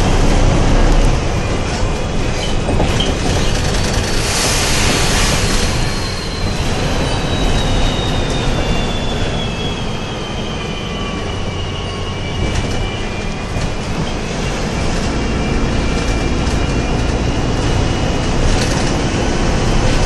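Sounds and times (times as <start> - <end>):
bus engine rumble: 0.0 - 20.0
high drivetrain whine: 0.0 - 20.0.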